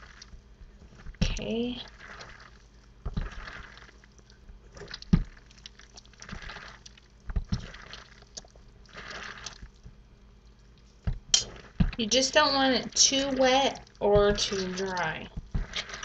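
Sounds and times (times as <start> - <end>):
meat squelching by hand: 1.0 - 9.8, 12.8 - 16.0.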